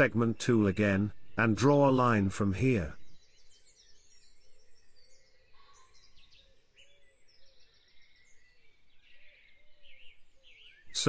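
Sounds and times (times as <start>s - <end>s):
birds chirping and trilling: 0.0s - 11.0s
low repeated bird calls: 0.0s - 11.0s.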